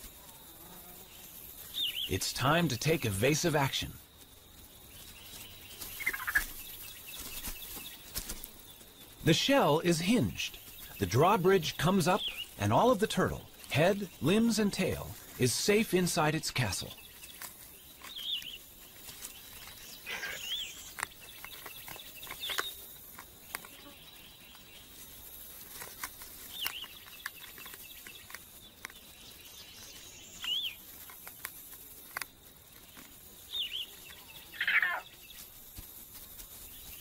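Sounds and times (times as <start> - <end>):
high chirping animal calls: 5.0 - 8.0, 9.2 - 17.2, 33.5 - 35.3
faint clicks and scratches: 17.0 - 37.0.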